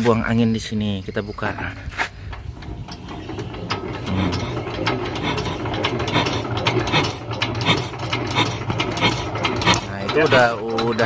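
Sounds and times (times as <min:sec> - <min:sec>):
diesel engine hand cranked clatter: 0:02.2 - 0:11.0.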